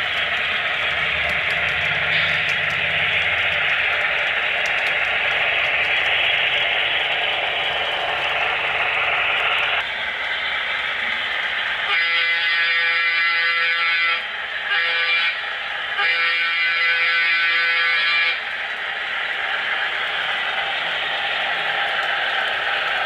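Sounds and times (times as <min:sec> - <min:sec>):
locomotive running noise: 0:00.0 - 0:23.0
model locomotive horn chord: 0:11.9 - 0:15.4, 0:16.0 - 0:18.4.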